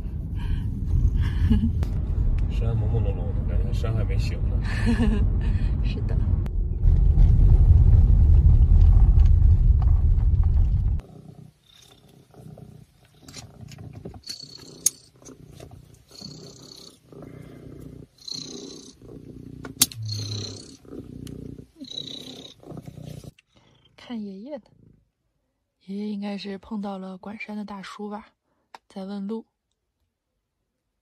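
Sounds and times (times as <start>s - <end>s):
road rumble inside car: 0.0s - 11.0s
cat purring: 11.0s - 25.1s.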